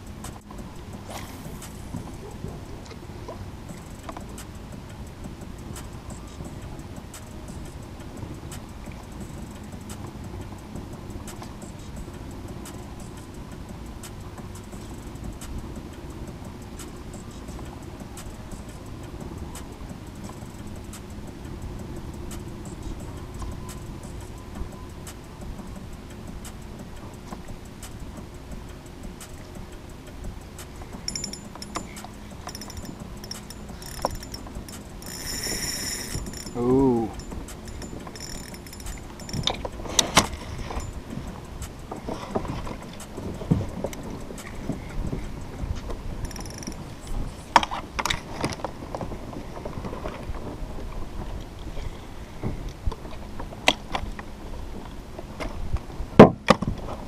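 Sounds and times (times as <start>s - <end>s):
steady low rumble: 0.0s - 56.2s
faint reel clicks: 3.7s - 50.2s
fishing gear clicks and knocks: 30.5s - 50.6s
spinning reel being cranked: 31.0s - 41.1s, 46.2s - 46.8s.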